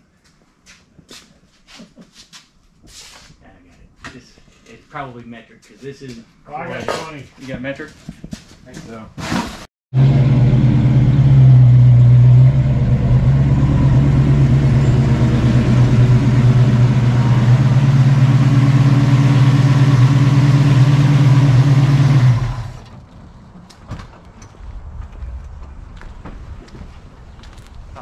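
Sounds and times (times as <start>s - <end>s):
engine running steadily: 10.0s - 23.0s.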